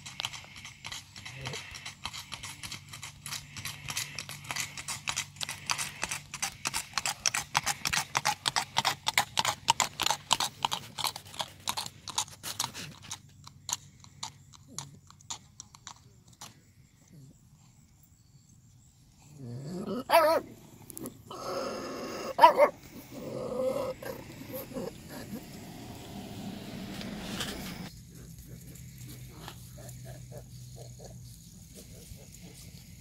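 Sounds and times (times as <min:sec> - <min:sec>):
hoofbeats on gravel: 0:00.0 - 0:13.3.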